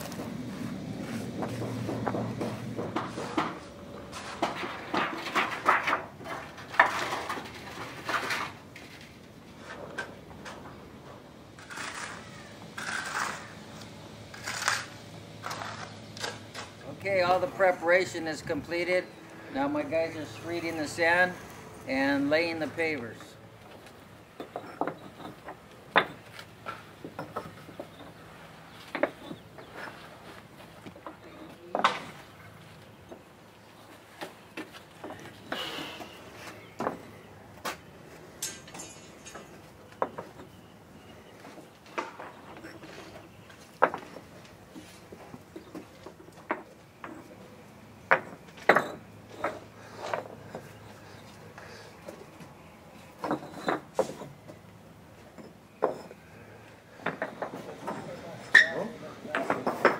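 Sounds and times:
concrete pavers clacking together: 0:00.0 - 0:59.9.

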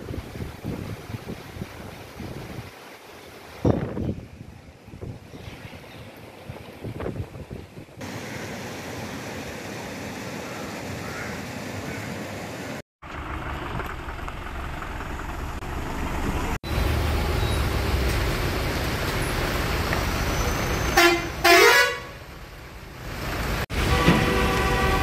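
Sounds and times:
traffic on wet street: 0:08.0 - 0:25.0
vehicle horn tooting: 0:20.9 - 0:22.2, 0:23.8 - 0:25.0.

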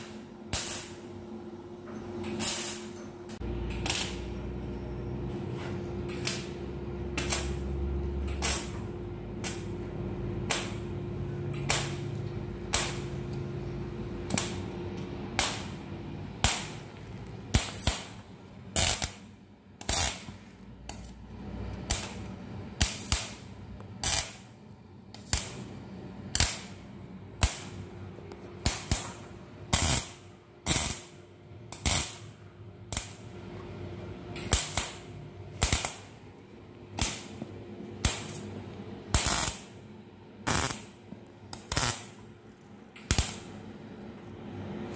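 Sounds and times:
arc welding crackling bursts: 0:00.0 - 0:01.1, 0:02.4 - 0:02.9, 0:03.6 - 0:04.4, 0:06.2 - 0:13.6, 0:14.2 - 0:21.1, 0:21.8 - 0:27.8, 0:28.6 - 0:33.3, 0:34.4 - 0:36.2, 0:37.0 - 0:37.4, 0:38.0 - 0:39.8, 0:40.4 - 0:42.2, 0:43.0 - 0:43.6
faint machine hum: 0:00.0 - 0:44.9.

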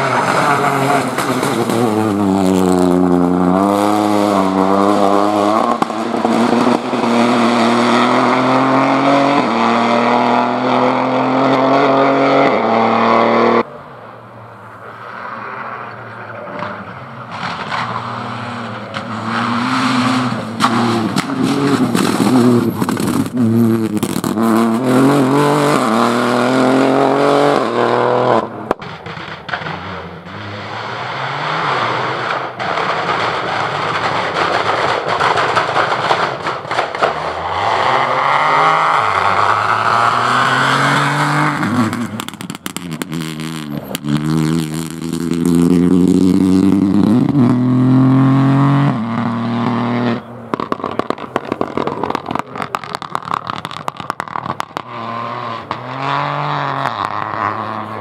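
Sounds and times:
rally cars accelerating: 0:00.0 - 0:58.0
sharp exhaust pops: 0:18.9 - 0:24.5, 0:28.7 - 0:30.0, 0:32.2 - 0:37.9, 0:41.5 - 0:47.6, 0:50.5 - 0:55.0.

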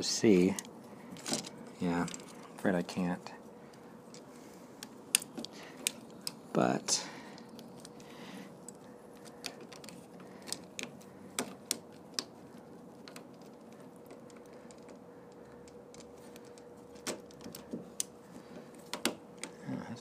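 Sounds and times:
light clicks and taps of parts: 0:00.0 - 0:19.6
faint steady hum: 0:00.0 - 0:20.0.

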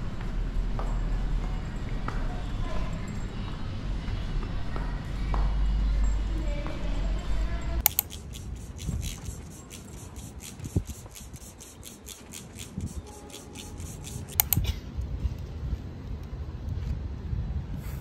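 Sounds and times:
scissors snipping hair: 0:07.8 - 0:14.8.

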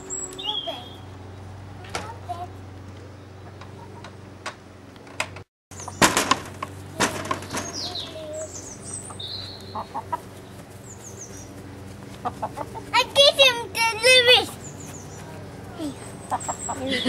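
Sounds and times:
sharp knocks: 0:05.2 - 0:07.9
hens clucking: 0:05.8 - 0:13.9, 0:14.5 - 0:17.0.

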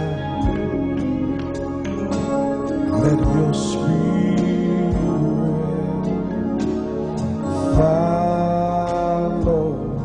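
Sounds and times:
band accompaniment: 0:00.0 - 0:10.0
man singing a long note: 0:02.9 - 0:06.4, 0:07.5 - 0:10.0.

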